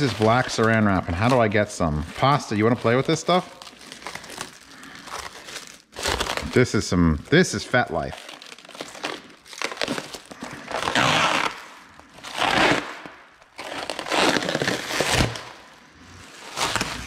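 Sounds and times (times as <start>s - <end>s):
plastic stretch wrap crinkling: 0.0s - 17.0s.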